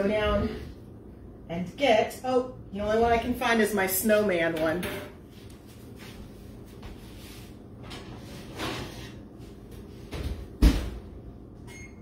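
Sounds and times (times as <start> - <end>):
scrape: 7.0 - 7.6.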